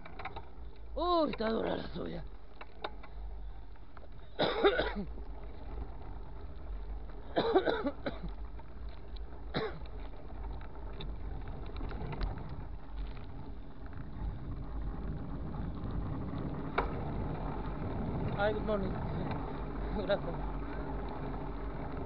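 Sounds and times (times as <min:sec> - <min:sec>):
low steady rumble: 0:00.0 - 0:22.0
man coughing: 0:04.4 - 0:05.1, 0:07.4 - 0:08.3, 0:09.5 - 0:09.8.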